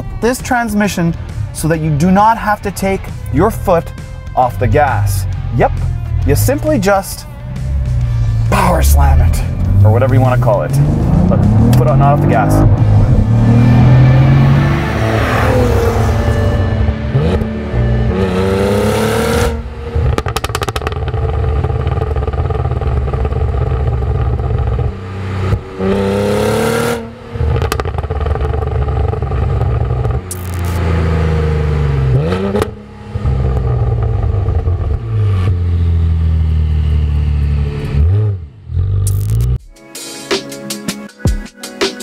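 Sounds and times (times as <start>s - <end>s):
car engine accelerating hard: 4.6s - 39.6s.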